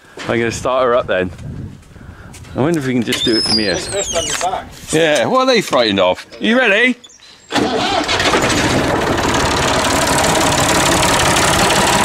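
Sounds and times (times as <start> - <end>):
tractor diesel engine idling: 7.6 - 12.0.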